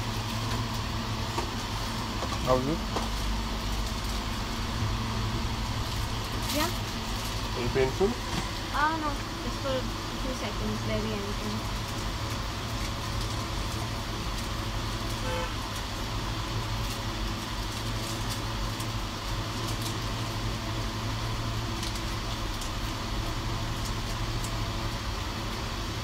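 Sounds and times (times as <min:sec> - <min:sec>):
low background hum: 0:00.0 - 0:26.0
faint horn toot: 0:15.2 - 0:15.6.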